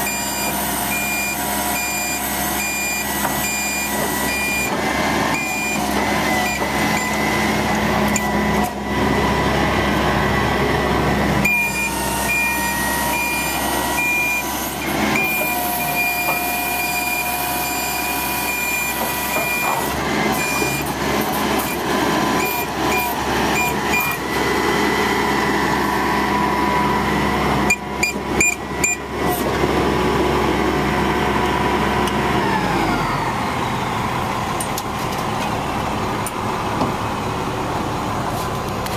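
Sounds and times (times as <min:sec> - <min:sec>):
warning alarm beeping: 0:00.0 - 0:09.1, 0:11.4 - 0:14.5, 0:15.1 - 0:21.0, 0:22.4 - 0:24.3
truck engine running: 0:00.0 - 0:38.9.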